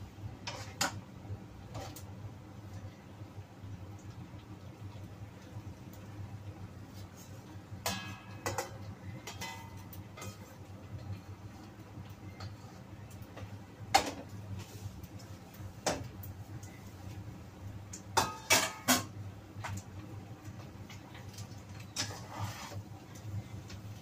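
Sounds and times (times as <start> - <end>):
metal spatula scraping wok: 0.4 - 0.9, 21.9 - 22.9.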